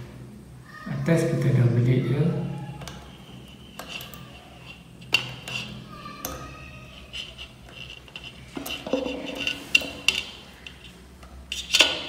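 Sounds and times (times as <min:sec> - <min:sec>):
metallic clicks of wire being wound: 0:03.8 - 0:12.0.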